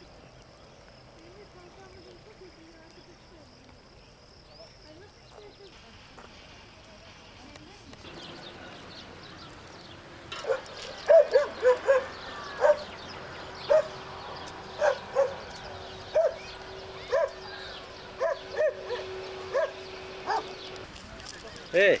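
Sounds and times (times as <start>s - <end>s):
dog barking: 10.4s - 12.9s, 13.7s - 14.0s, 14.8s - 15.5s, 16.1s - 16.4s, 17.1s - 17.5s, 18.2s - 20.5s.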